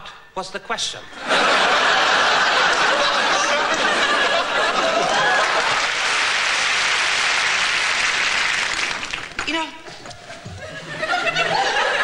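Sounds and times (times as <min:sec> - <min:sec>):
audience laughing: 0:01.1 - 0:07.5, 0:09.9 - 0:12.0
audience clapping: 0:02.4 - 0:12.0.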